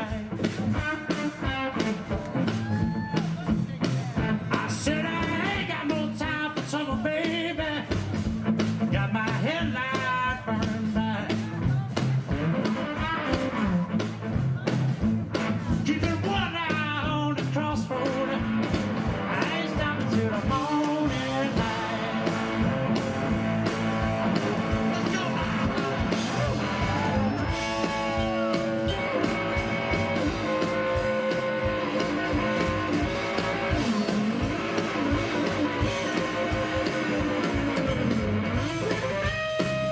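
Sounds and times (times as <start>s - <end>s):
man singing: 0.0s - 2.6s, 3.2s - 13.9s, 15.4s - 39.4s
live electric blues band: 0.0s - 39.9s
electric guitar lead notes: 17.8s - 39.9s.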